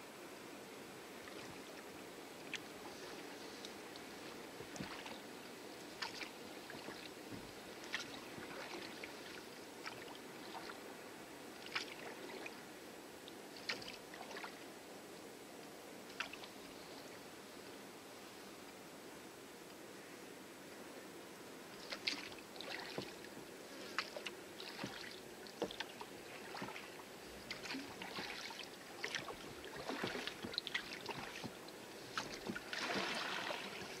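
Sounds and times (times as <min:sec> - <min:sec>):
oar splashing: 0:02.5 - 0:05.3, 0:05.9 - 0:10.8, 0:11.6 - 0:12.5, 0:21.8 - 0:34.0
water washing against hull: 0:21.9 - 0:34.0.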